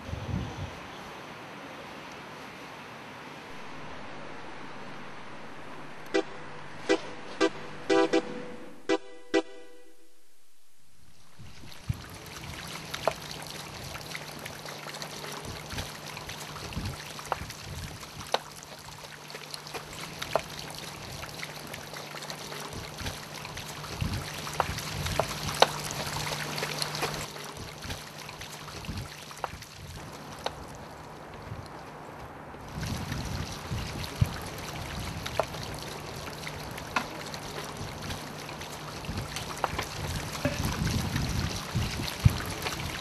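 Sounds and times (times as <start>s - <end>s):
low steady hum: 0.0s - 43.0s
water running from fountain: 11.3s - 43.0s.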